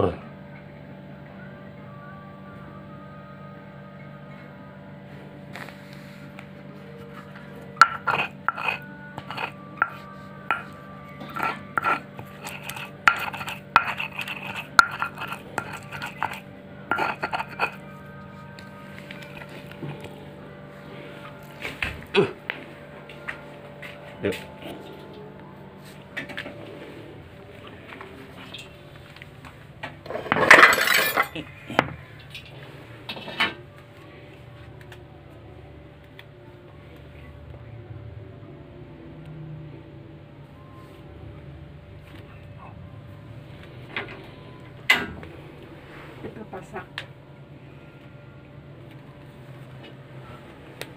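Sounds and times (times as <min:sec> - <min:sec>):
utensils clinking against dishes: 0:07.8 - 0:18.0, 0:30.0 - 0:33.6
metal pans clattering: 0:30.0 - 0:31.5.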